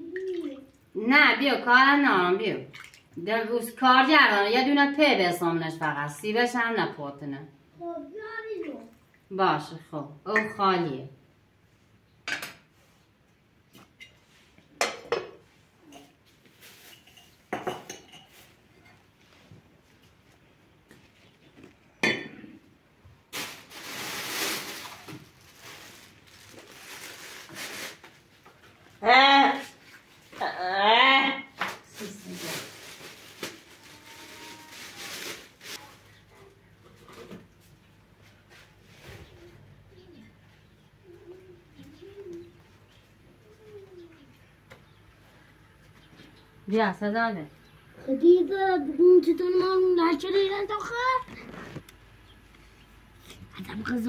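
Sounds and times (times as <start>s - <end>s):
plastic bags rustling: 16.4s - 17.2s, 23.2s - 29.0s, 31.7s - 36.3s.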